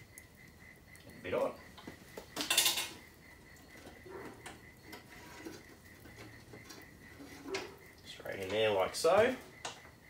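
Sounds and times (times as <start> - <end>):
wire rack scraping in steel oven: 3.8 - 7.8.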